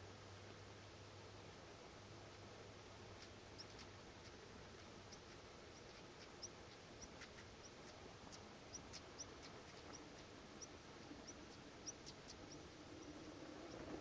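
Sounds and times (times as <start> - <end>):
faint ticks: 2.3 - 14.0
small bird chirping: 3.1 - 14.0.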